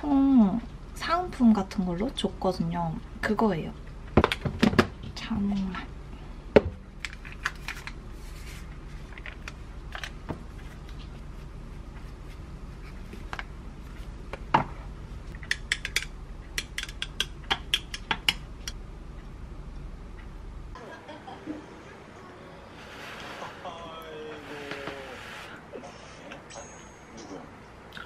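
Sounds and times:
low hum: 18.3 - 28.0.

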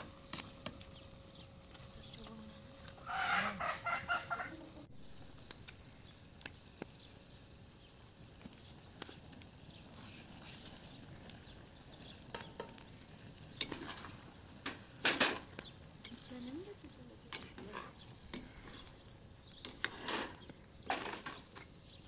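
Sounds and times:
frying in a pan: 0.0 - 22.0
hen clucking: 3.0 - 4.9.

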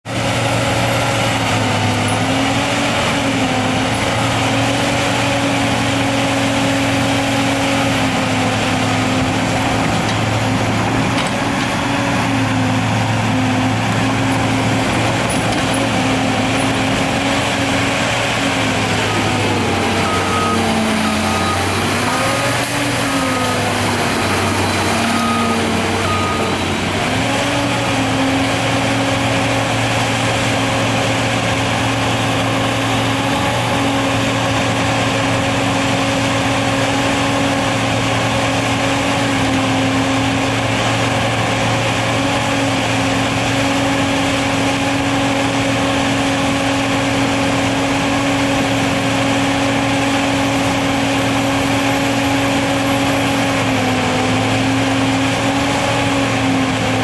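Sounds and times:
diesel engine running: 0.1 - 57.0
warning beeper: 18.0 - 28.1.

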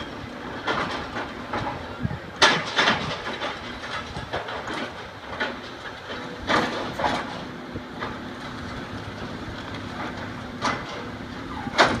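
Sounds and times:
diesel engine drone: 0.0 - 12.0
metallic clanks of debris: 2.4 - 8.2.

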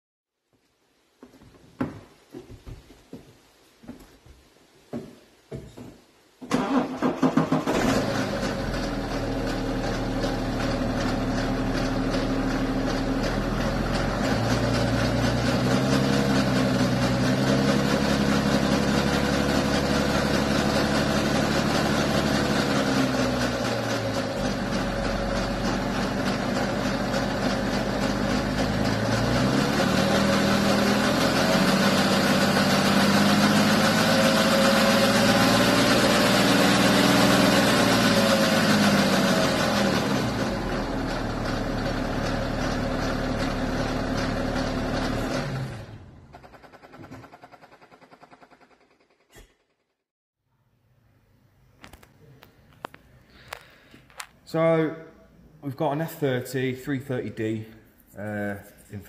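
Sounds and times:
diesel engine idling: 8.0 - 49.0.

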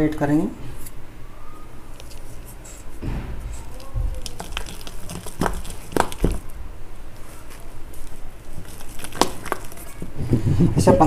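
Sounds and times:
wet batter squishing: 1.9 - 10.2.

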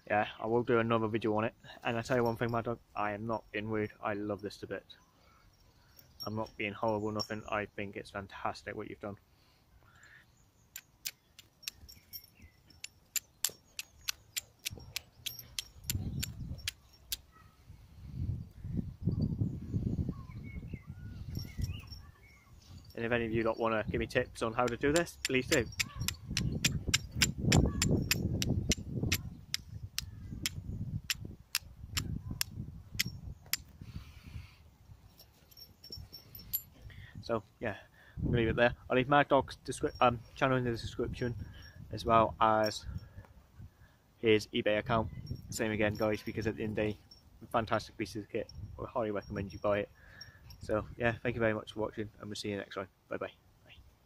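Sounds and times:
steel striker scraping flint: 10.8 - 17.3, 24.6 - 33.7.

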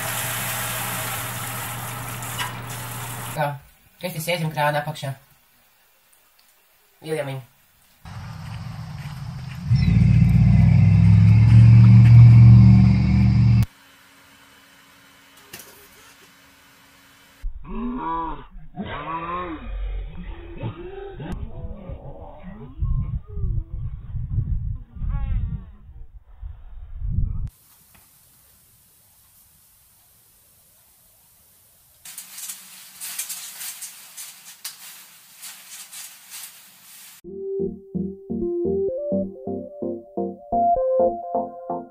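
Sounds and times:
loud low motor drone: 8.1 - 13.7
paper towel crinkling and tearing: 32.1 - 37.2
electronic music: 37.2 - 41.9.

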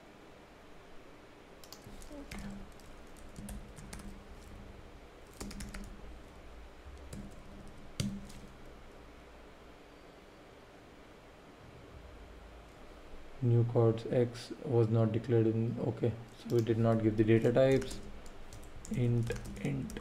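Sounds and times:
typing on computer keyboard: 1.6 - 4.5, 5.3 - 6.2, 6.9 - 8.5, 16.4 - 20.0.

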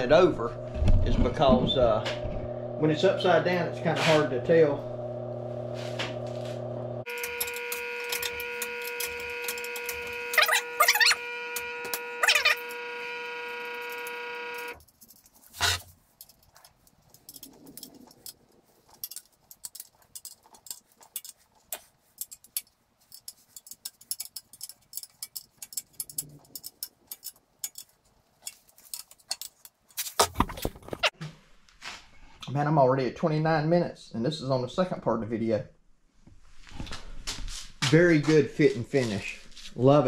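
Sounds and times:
steady pitched hum: 0.0 - 14.8
clicks of steel parts handled: 16.1 - 30.4.

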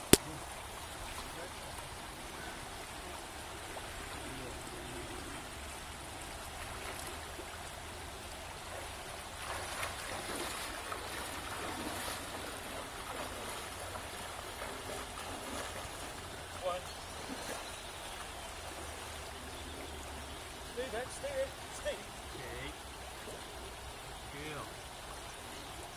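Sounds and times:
splashing of wading: 0.0 - 20.4.

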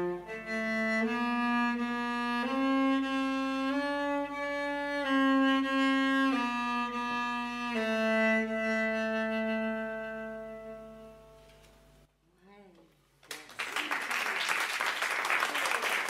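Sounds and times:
cello playing slow bowed melody: 0.0 - 11.7.

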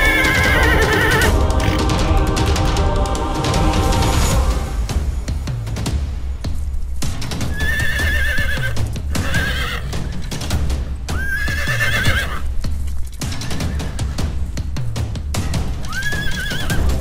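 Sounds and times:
horse whinnying: 0.0 - 1.8, 7.5 - 10.4, 11.1 - 12.5, 15.8 - 17.0
music with low beat: 0.0 - 17.0.

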